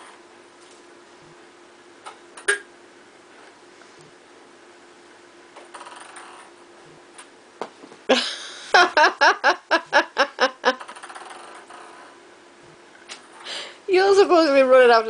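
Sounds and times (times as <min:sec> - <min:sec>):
person laughing hard: 0:08.1 - 0:10.8.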